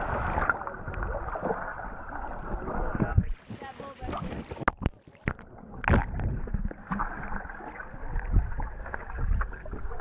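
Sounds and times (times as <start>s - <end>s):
underwater bubbling and gurgling: 0.0s - 10.0s
dull underwater thumps: 4.2s - 10.0s.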